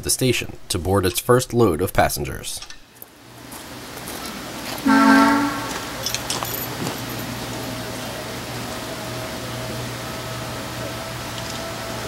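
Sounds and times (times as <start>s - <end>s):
diesel locomotive engine running: 3.6s - 12.0s
locomotive horn blast: 4.8s - 6.2s.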